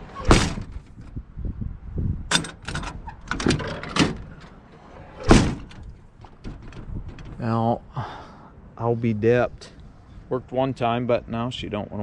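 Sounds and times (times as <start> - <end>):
truck cab door slamming: 0.0 - 1.0, 2.3 - 4.5, 5.2 - 7.5
door latch clicks and knocks: 2.3 - 4.4, 5.2 - 7.4.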